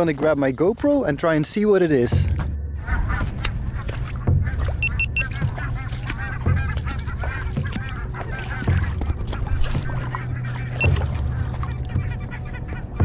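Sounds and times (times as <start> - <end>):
geese honking: 2.8 - 13.0.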